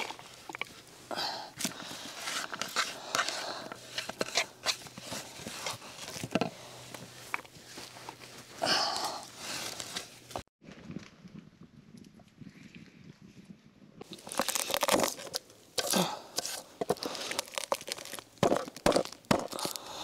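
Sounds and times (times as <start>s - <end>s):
rustling: 0.0s - 11.0s.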